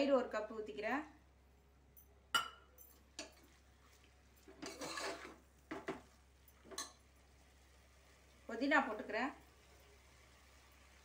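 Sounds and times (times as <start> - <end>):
spoon clinking against pot: 2.4 - 3.4, 6.6 - 7.0
spoon scraping pot: 4.4 - 6.0.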